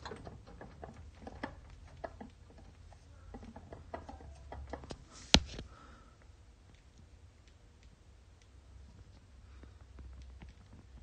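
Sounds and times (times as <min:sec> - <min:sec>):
clicks and knocks of rotor coupler: 0:00.0 - 0:05.0.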